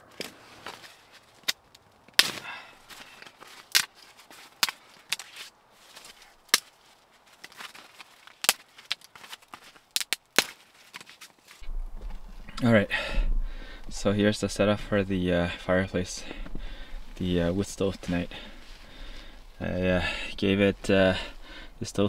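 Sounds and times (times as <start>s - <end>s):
dry twigs snapping: 0.1s - 12.6s.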